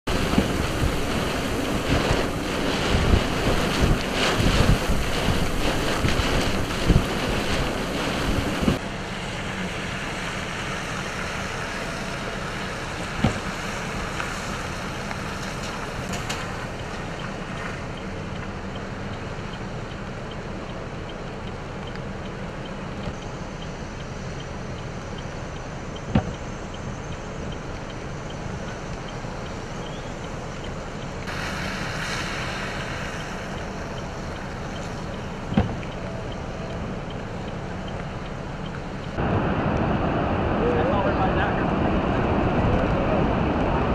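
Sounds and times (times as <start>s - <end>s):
gusting wind buffeting microphone: 0.1s - 8.8s, 27.3s - 43.9s.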